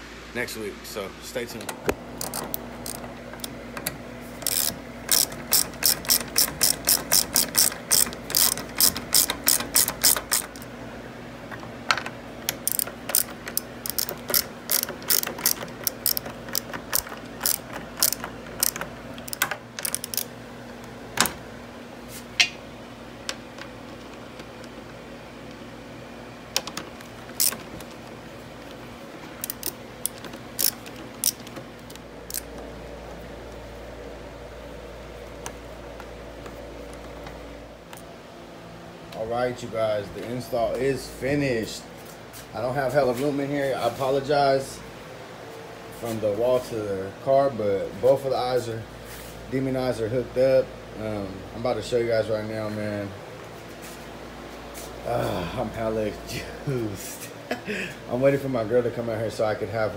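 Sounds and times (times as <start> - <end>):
socket ratchet clicking: 1.8 - 10.7, 11.5 - 21.3, 26.5 - 28.8, 29.4 - 32.7.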